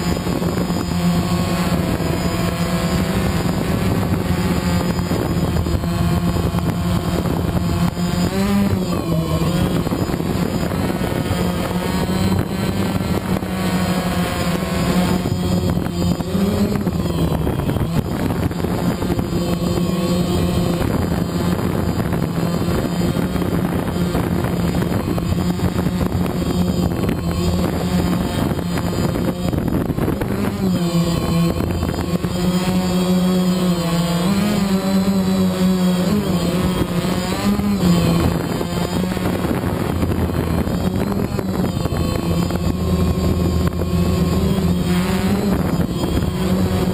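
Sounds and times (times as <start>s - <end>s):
drone propellers buzzing: 0.0s - 46.9s.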